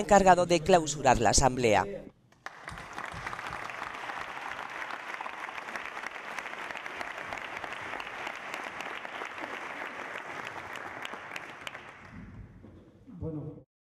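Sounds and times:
audience applauding: 0:02.4 - 0:12.2.

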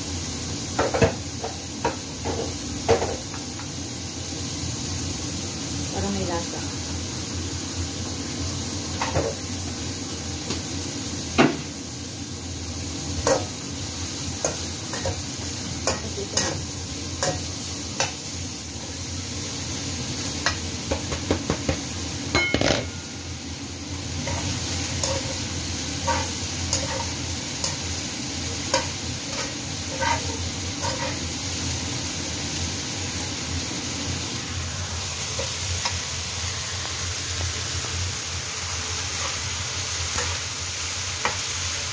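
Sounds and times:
vegetables sizzling in a wok: 0:00.0 - 0:41.9
spatula scraping and knocking pan: 0:26.0 - 0:27.8, 0:28.7 - 0:31.2.

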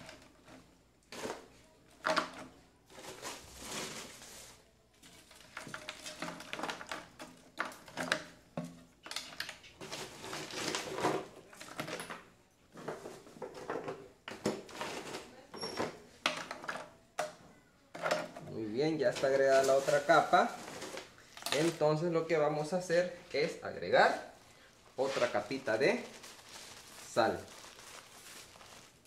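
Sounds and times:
ice cubes clattering into bucket: 0:05.0 - 0:08.3, 0:09.0 - 0:12.2, 0:19.0 - 0:22.0.

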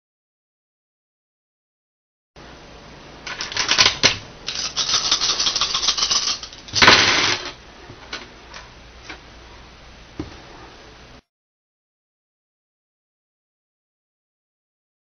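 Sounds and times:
dice rattling in hand: 0:03.4 - 0:07.0
dice rolling on wooden table: 0:03.4 - 0:07.6.

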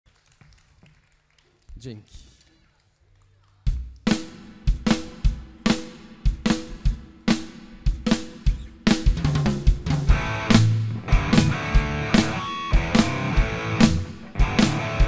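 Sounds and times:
rock drum beat: 0:03.7 - 0:15.0.

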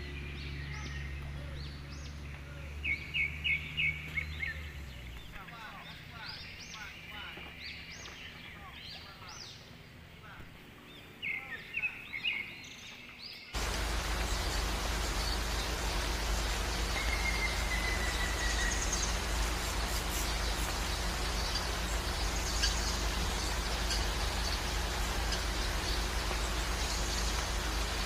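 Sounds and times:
rushing beach ambience: 0:13.6 - 0:28.0.

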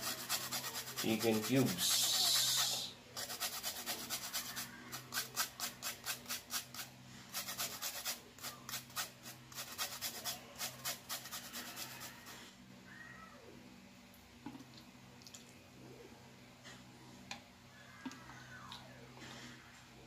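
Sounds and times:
metal grater rasping: 0:00.0 - 0:12.4.

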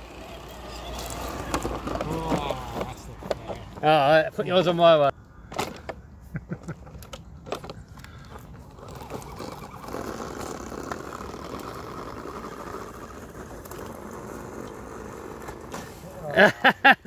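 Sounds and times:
tyres crunching on gravel: 0:00.0 - 0:05.1, 0:07.6 - 0:16.5
electric motor and gear whine: 0:08.7 - 0:15.6.

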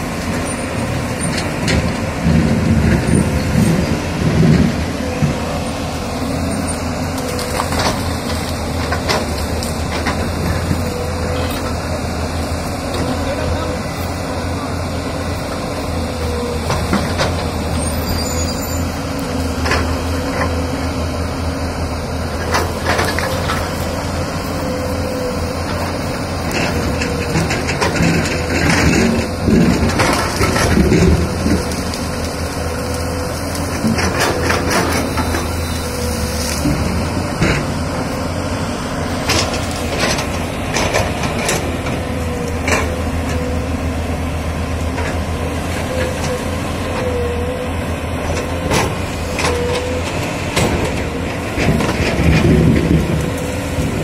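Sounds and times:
excavator diesel engine running: 0:00.0 - 0:54.0
branches cracking and snapping: 0:07.0 - 0:10.8, 0:26.6 - 0:37.8, 0:39.2 - 0:43.3.

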